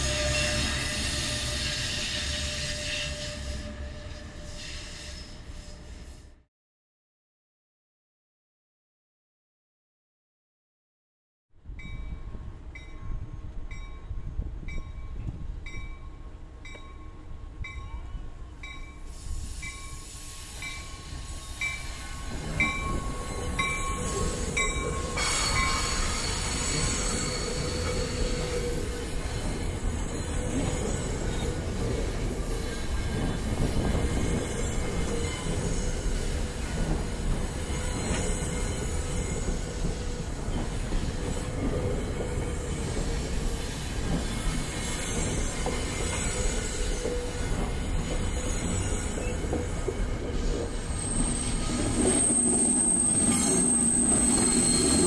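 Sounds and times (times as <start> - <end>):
train wheels squealing: 0.0 - 6.4, 12.8 - 55.0
crossing bell dinging: 11.8 - 28.8
train wheels rumbling: 11.8 - 55.0.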